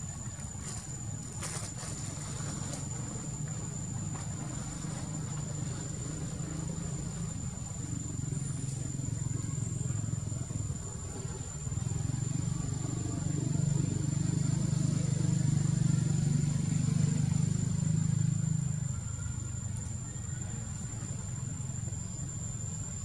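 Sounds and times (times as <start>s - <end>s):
high-pitched insect drone: 0.0s - 23.0s.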